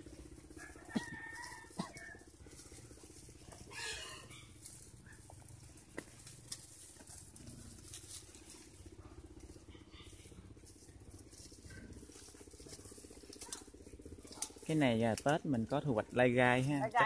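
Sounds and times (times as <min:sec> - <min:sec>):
faint chicken calls: 0:00.0 - 0:05.4
steady low hum: 0:00.0 - 0:17.0.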